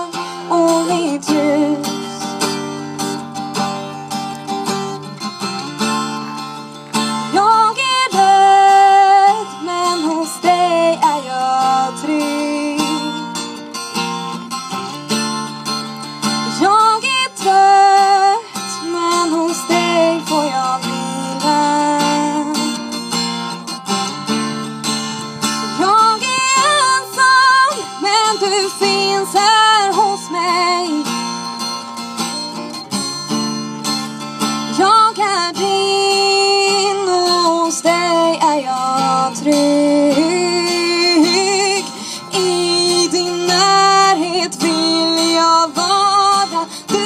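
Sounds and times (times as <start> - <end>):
girl singing: 0.0 - 2.2, 7.3 - 13.2, 16.5 - 22.8, 25.7 - 31.1, 34.7 - 47.0
strummed acoustic guitar: 0.0 - 47.0.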